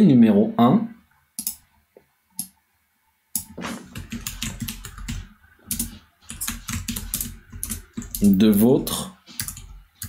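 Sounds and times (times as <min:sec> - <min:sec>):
computer keyboard typing: 0:01.4 - 0:01.6, 0:03.4 - 0:08.8, 0:09.4 - 0:10.0.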